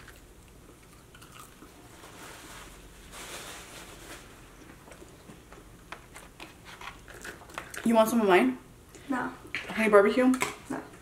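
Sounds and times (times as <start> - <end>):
person chewing: 0.0 - 1.9.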